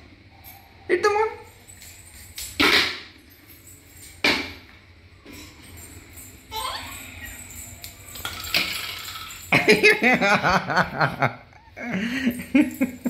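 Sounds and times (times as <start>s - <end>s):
light clinking: 1.5s - 10.1s.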